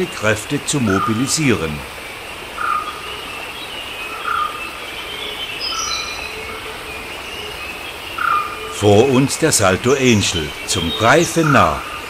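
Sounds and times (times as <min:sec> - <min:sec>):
steady rushing hiss: 0:00.0 - 0:12.0
insect buzz: 0:00.8 - 0:08.8.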